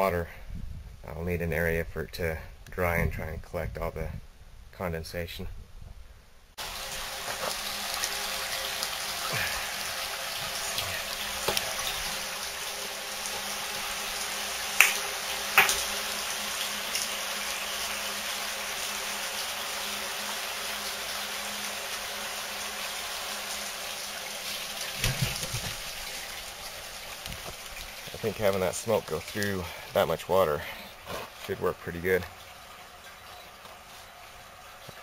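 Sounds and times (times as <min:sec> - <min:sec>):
hiss of water spray: 0:06.6 - 0:28.2
water pattering on tank walls: 0:06.6 - 0:35.0.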